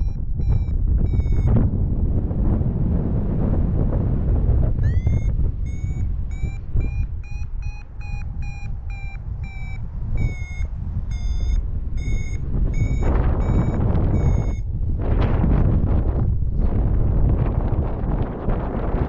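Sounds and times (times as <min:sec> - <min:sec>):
variometer beeps: 0:00.0 - 0:01.7, 0:04.8 - 0:14.7
wind rushing over microphone: 0:00.0 - 0:19.0.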